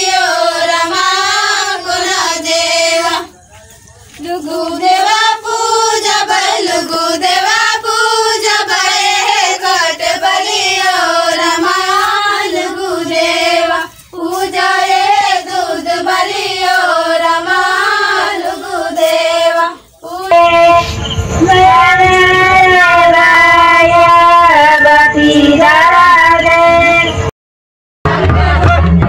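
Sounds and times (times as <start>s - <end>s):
girls singing folk song: 0.0s - 3.3s, 4.1s - 20.8s.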